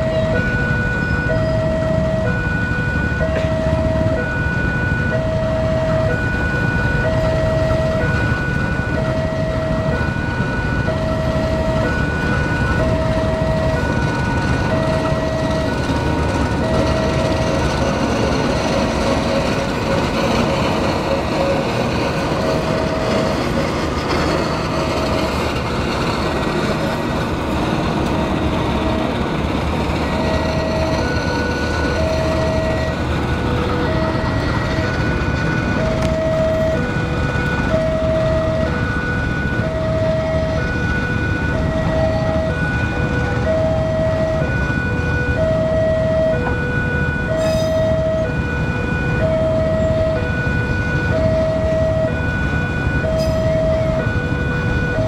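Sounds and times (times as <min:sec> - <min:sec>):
two-tone crossing alarm chime: 0:00.0 - 0:18.2, 0:30.0 - 0:35.1
locomotive engine rumble: 0:00.0 - 0:55.0
train wheels on rails: 0:00.0 - 0:55.0.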